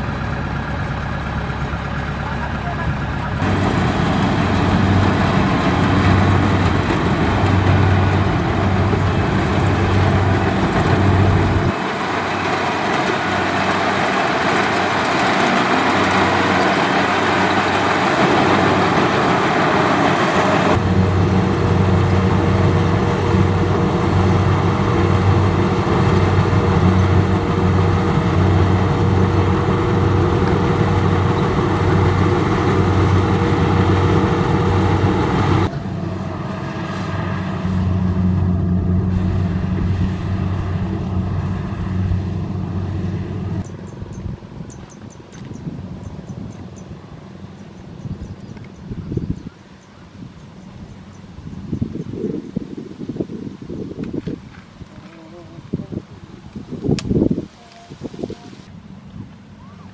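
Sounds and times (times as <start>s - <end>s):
combine harvester engine running: 0.0s - 44.6s
steady machine whine: 3.4s - 43.7s.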